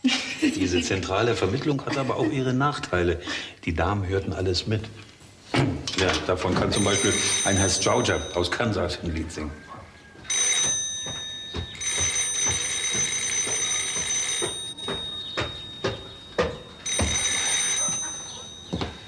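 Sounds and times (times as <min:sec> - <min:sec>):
old telephone bell ringing: 0:06.7 - 0:09.6, 0:10.2 - 0:19.0
footsteps on wooden boards: 0:09.8 - 0:19.0.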